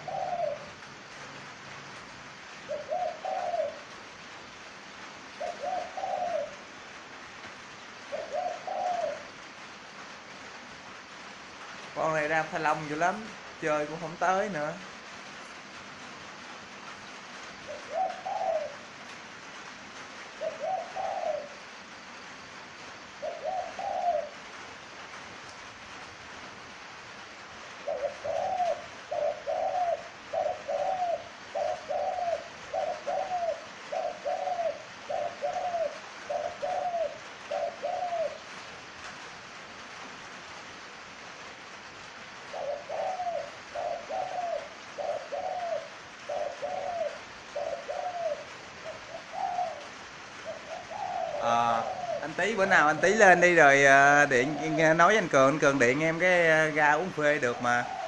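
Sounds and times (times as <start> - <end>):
dove cooing: 0.0 - 1.2, 2.4 - 6.8, 8.0 - 9.7, 17.1 - 19.6, 20.3 - 21.8, 23.0 - 24.5, 27.7 - 38.8, 42.4 - 58.0.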